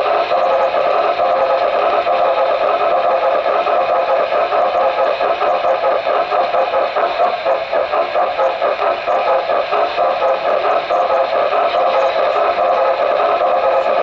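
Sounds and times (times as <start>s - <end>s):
model train whirring and rattling: 0.0s - 14.0s.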